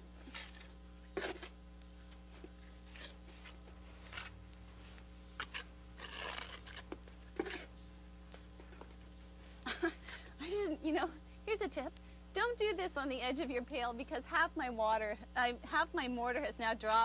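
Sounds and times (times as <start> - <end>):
trowel scraping mortar on brick: 0.2 - 1.5, 2.9 - 4.4, 5.4 - 7.7.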